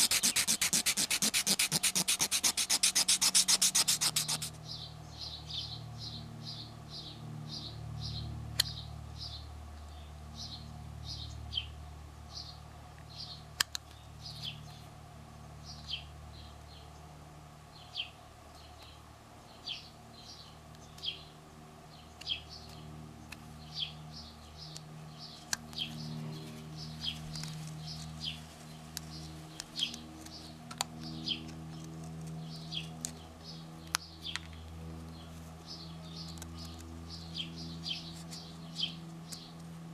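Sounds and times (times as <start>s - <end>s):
knife shaving wood: 0.0s - 4.6s
low steady hum: 0.0s - 39.9s.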